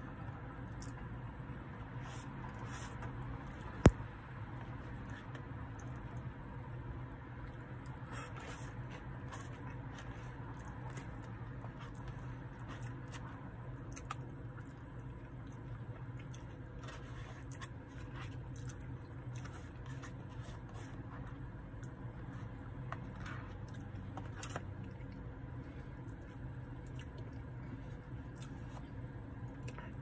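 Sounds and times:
chewing: 7.4 - 30.0.

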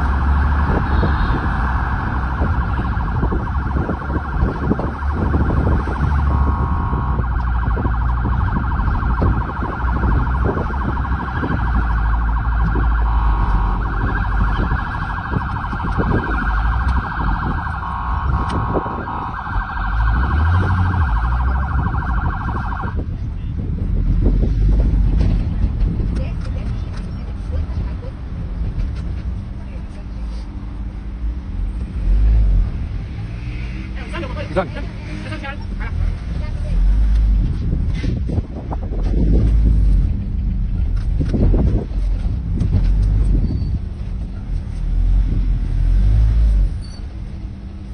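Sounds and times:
ambulance siren warbling: 0.0 - 23.2
engine and road rumble: 0.0 - 47.9.

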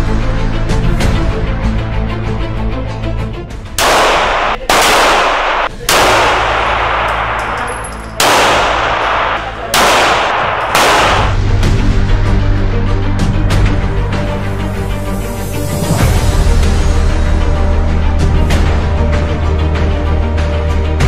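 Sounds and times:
pistol shots with echo: 3.8 - 11.5.

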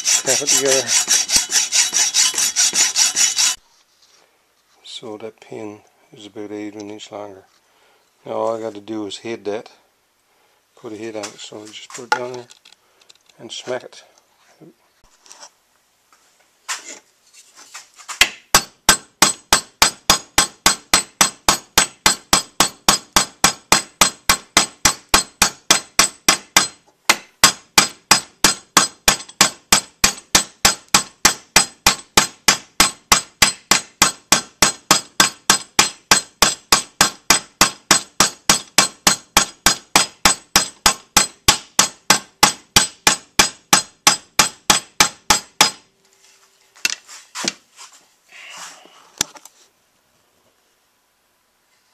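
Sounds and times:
hammer striking metal nail: 0.0 - 3.6, 18.2 - 45.8.

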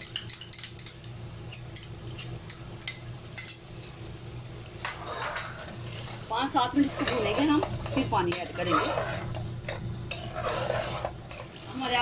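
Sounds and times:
metal spoons clinking on pot: 0.0 - 4.0
steady low hum: 0.0 - 12.0.

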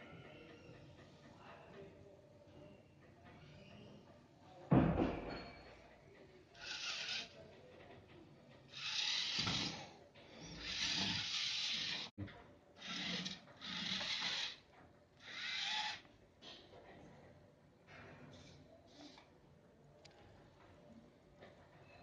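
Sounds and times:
robot motors whirring: 6.6 - 7.4, 8.7 - 12.1, 12.8 - 14.6, 15.2 - 16.0.

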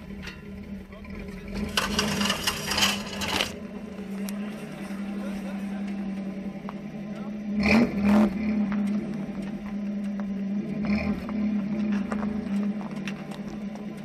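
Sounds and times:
vehicle jolting thumps: 0.0 - 3.6
vehicle engine droning: 0.0 - 14.0.

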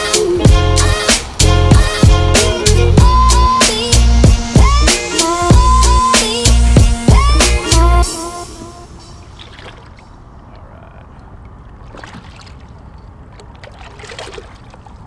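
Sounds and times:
music: 0.0 - 9.2
water splashes and drips: 9.2 - 15.0.

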